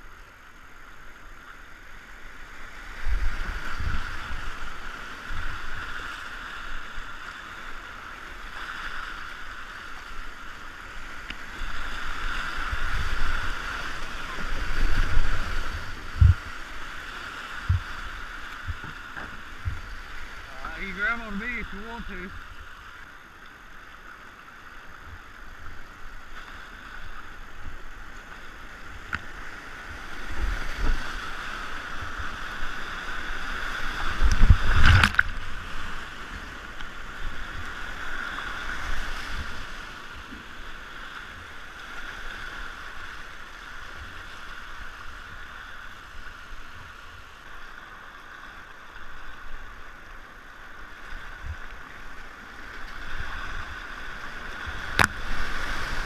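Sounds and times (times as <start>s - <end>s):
whitewater rushing and splashing: 0.0s - 56.0s
water knocking against boat: 17.6s - 18.0s, 18.6s - 20.0s.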